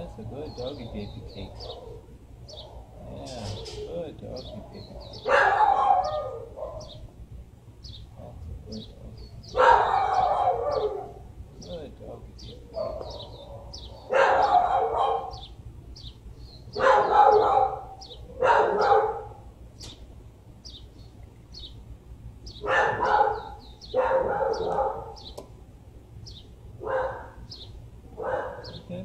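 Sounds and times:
dogs barking: 0:00.0 - 0:07.1, 0:09.3 - 0:16.1, 0:16.7 - 0:19.6, 0:22.5 - 0:25.5, 0:26.3 - 0:29.0
faint birds chirping: 0:00.0 - 0:29.0.

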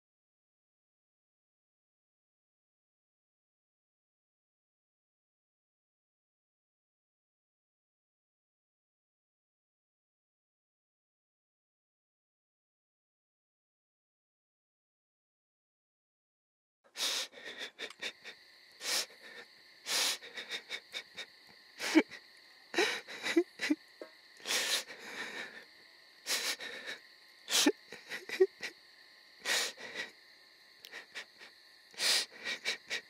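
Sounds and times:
man sobbing: 0:17.0 - 0:23.8, 0:24.4 - 0:28.8, 0:29.4 - 0:30.2, 0:30.8 - 0:33.0.

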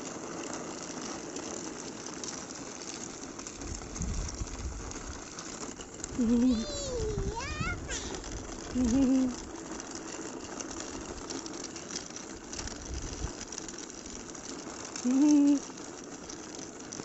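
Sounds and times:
baby walker wheels rattling on asphalt: 0:00.0 - 0:17.0
child vocalizing: 0:06.2 - 0:08.2.

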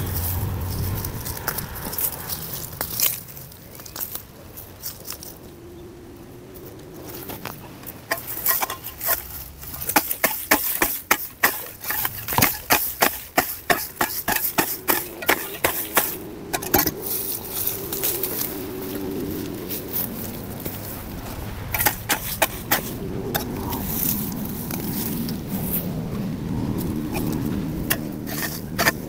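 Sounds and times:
hoe blade chopping soil: 0:08.1 - 0:17.0, 0:21.8 - 0:23.5, 0:27.2 - 0:29.0.

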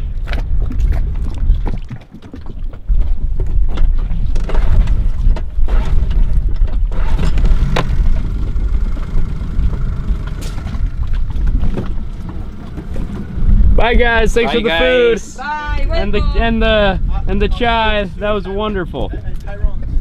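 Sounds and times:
outboard motor running: 0:03.3 - 0:19.1.

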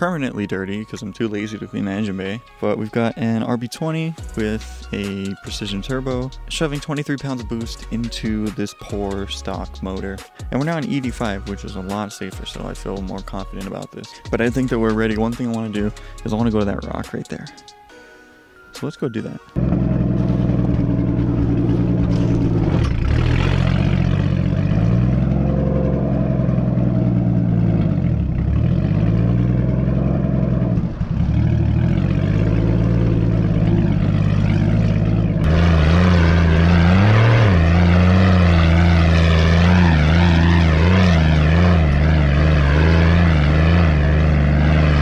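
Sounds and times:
turbocharged car engine at low revs: 0:19.6 - 0:45.0.

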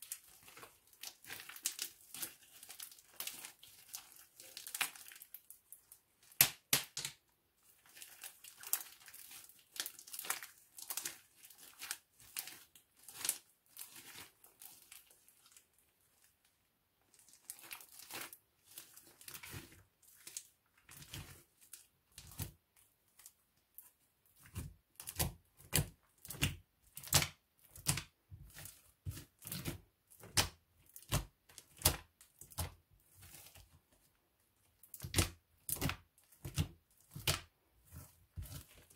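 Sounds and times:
slime squishing and popping: 0:34.9 - 0:38.9.

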